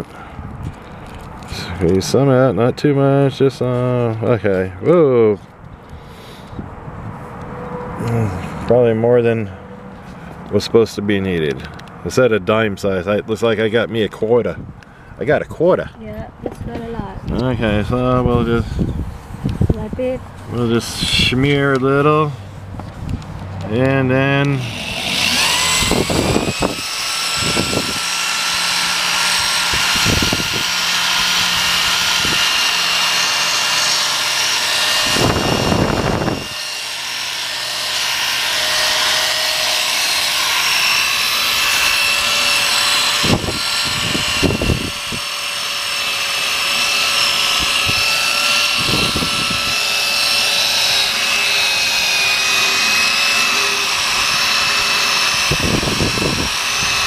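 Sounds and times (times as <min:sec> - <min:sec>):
electric drill motor whine: 0:23.1 - 0:57.0.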